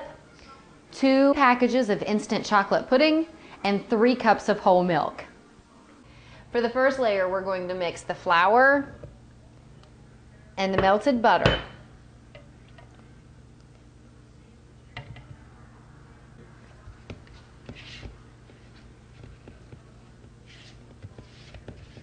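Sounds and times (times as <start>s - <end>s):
low steady hum: 0.0s - 22.0s
dough mixed by hand in plastic bowl: 15.0s - 22.0s.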